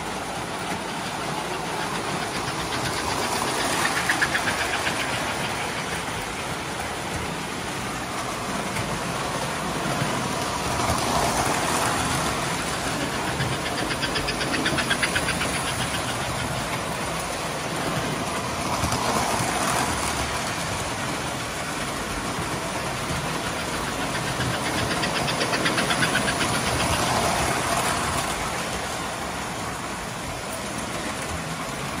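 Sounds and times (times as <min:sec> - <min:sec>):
wheels clicking over track joints: 0:00.0 - 0:32.0
toy train motors whirring: 0:00.6 - 0:07.3, 0:08.5 - 0:20.8, 0:21.8 - 0:28.7.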